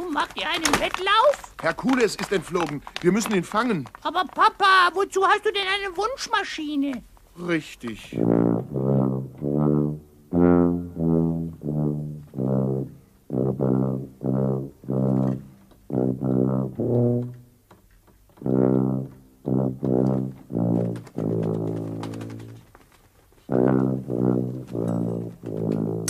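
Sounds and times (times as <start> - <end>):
brass melody of short notes: 8.2 - 17.6, 18.4 - 22.6, 23.5 - 26.0.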